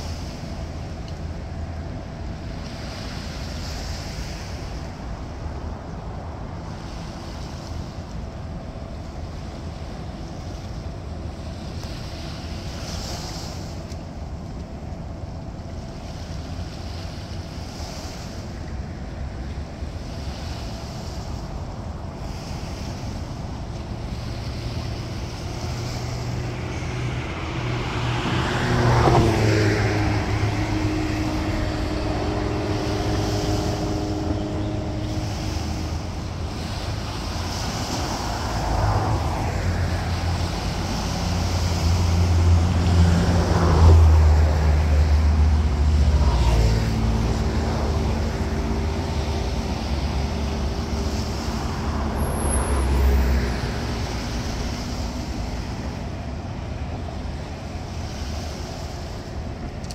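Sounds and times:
vehicles passing: 0.0s - 59.9s.

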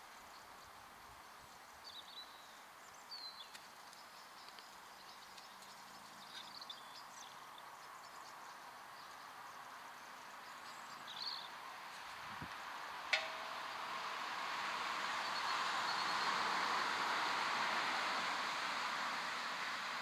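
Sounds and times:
faint bird chirping: 0.0s - 14.2s
faint steady hiss: 0.0s - 20.0s.

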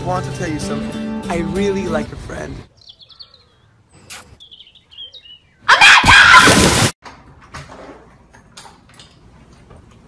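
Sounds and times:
loud scream: 5.7s - 6.6s.

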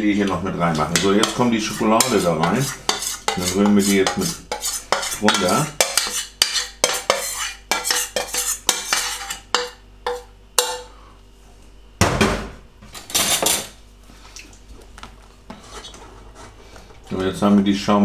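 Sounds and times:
metal spoon scraping steel bowl: 0.8s - 10.8s.

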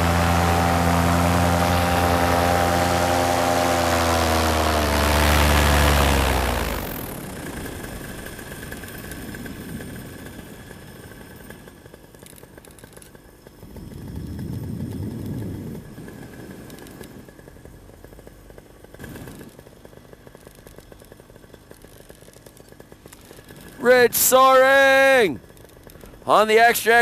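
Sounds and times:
paramotor engine running: 0.0s - 27.0s
wind rushing over microphone: 13.7s - 16.7s.

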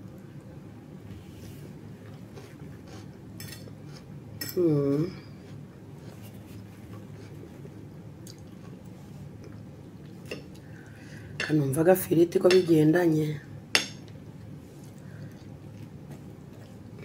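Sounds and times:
person humming mmm: 4.5s - 5.4s.

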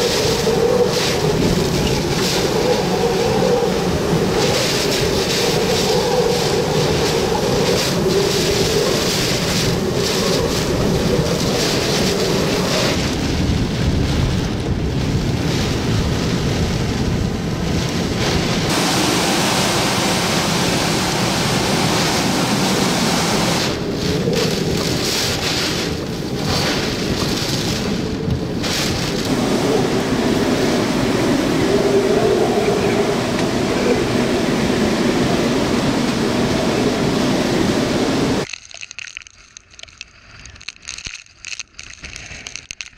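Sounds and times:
heavy wind-driven rain: 0.0s - 38.5s
strong wind: 0.0s - 38.5s
wind buffeting microphone: 0.0s - 38.5s.

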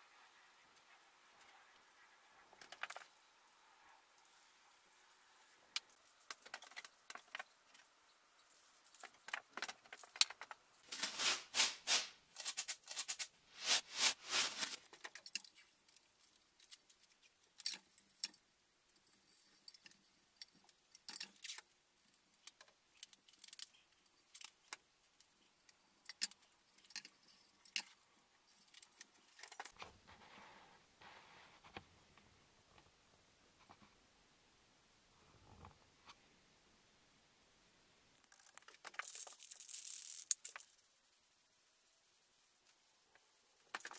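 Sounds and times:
tape ripping off roll: 10.9s - 14.8s
tape crackles and clicks: 38.2s - 40.7s.

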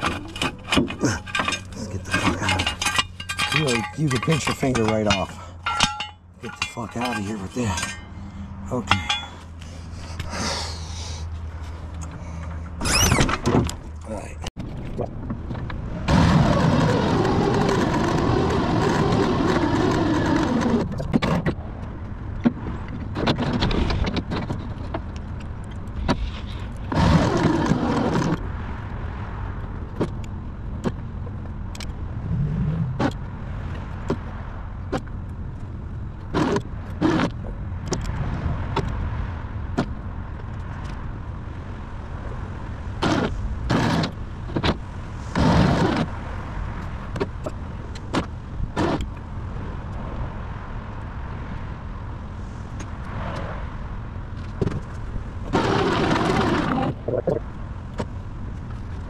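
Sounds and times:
cable and hitch clanking: 0.0s - 10.3s.

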